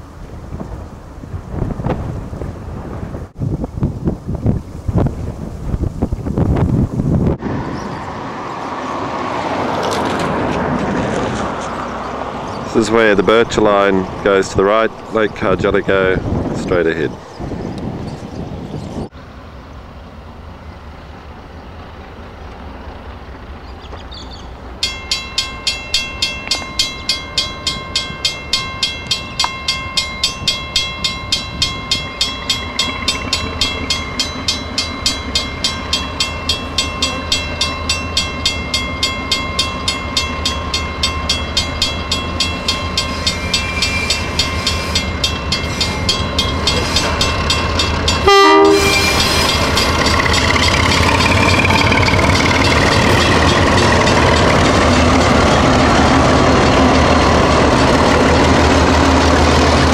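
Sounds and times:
diesel locomotive rumble: 0.0 - 59.9
level-crossing bell ringing: 24.8 - 55.8.

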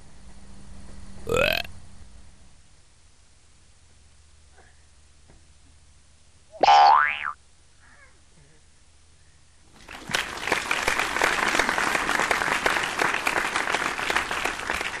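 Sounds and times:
many hands clapping: 9.8 - 15.0.

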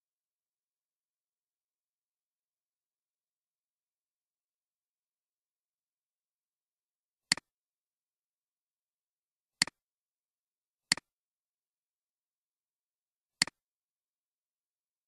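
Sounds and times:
computer mouse clicks: 7.3 - 7.5, 10.9 - 11.1.

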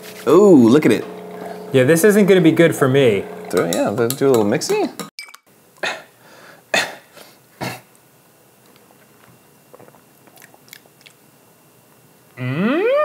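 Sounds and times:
sharp mouth sounds: 9.7 - 11.2.

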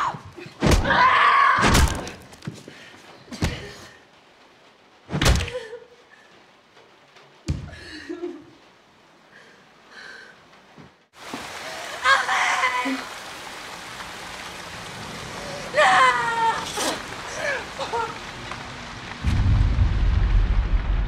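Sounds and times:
person screaming: 15.7 - 18.0.

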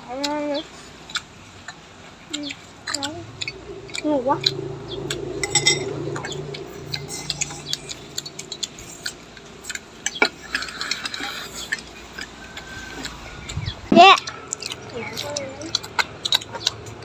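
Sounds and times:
chopsticks tapping steel bowls: 2.9 - 6.3.

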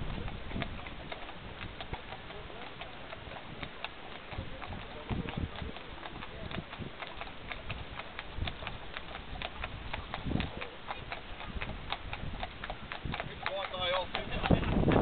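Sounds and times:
hooves striking ground: 0.0 - 15.0.

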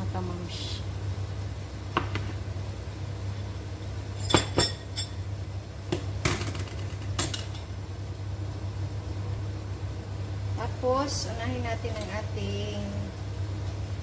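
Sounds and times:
dishes knocking on tiled counter: 2.0 - 2.4.

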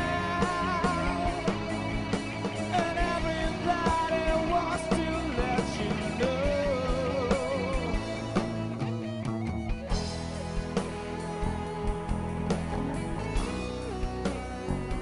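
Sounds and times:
man singing with vibrato: 0.0 - 8.7
live band playing: 0.0 - 15.0
steady drum beat: 0.0 - 15.0.

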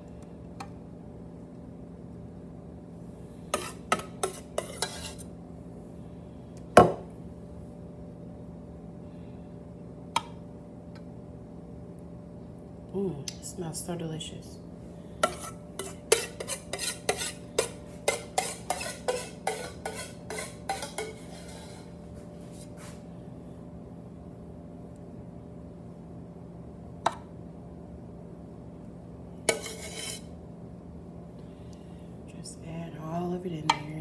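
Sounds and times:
steady low hum: 0.0 - 34.0
utensil scraping a loaf pan: 3.5 - 5.3, 15.2 - 23.0, 29.5 - 30.3.

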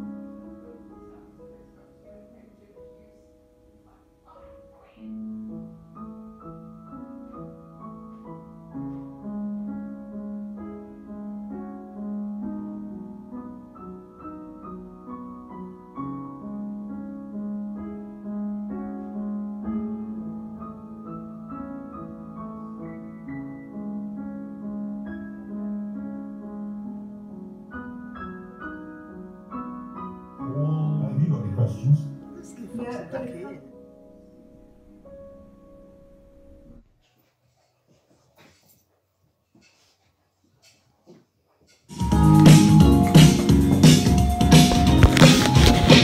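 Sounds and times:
piano music: 0.0 - 36.8, 41.9 - 46.0.

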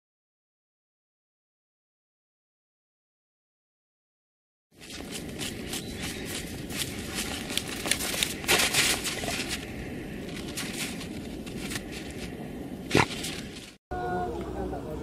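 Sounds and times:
dog paws digging in snow: 4.8 - 13.8.

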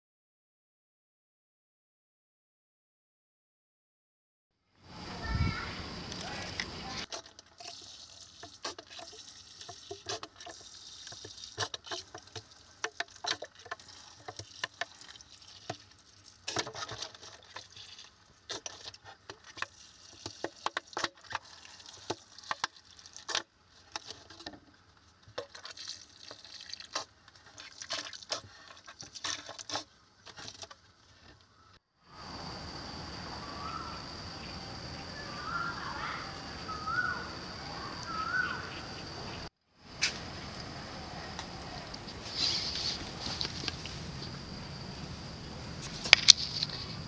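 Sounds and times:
water sprinkling on soil and pots: 5.5 - 31.3.

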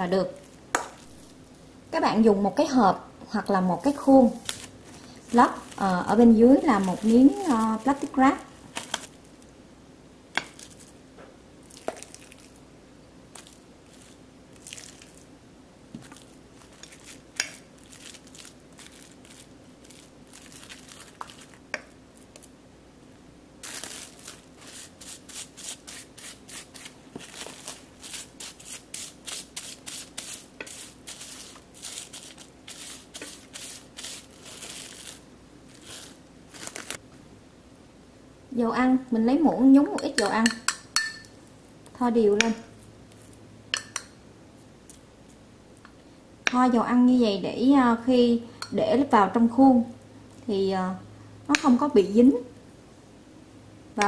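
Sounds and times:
plastic wrap crinkling: 3.6 - 9.3, 13.3 - 15.3, 15.9 - 22.5, 23.6 - 37.0.

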